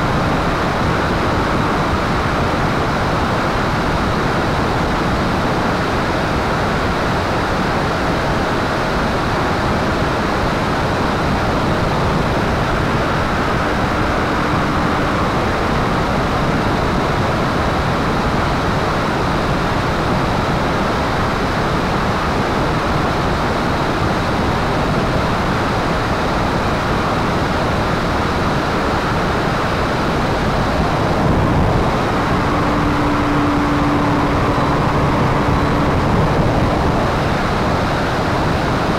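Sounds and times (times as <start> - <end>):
propeller plane engine: 0.0 - 38.9
rushing wind: 0.0 - 38.9.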